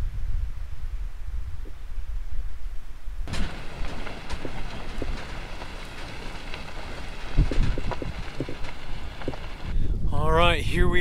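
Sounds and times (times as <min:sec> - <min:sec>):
vehicle low rumble: 0:02.8 - 0:10.5
tyres crackling over gravel: 0:03.3 - 0:09.8.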